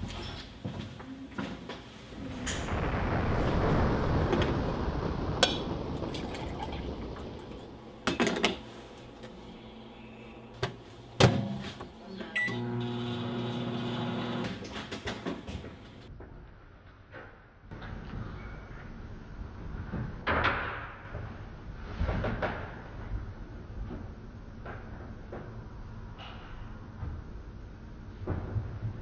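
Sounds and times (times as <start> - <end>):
appliance hum: 5.4 - 16.0
coffee maker rushing liquid: 12.6 - 14.6.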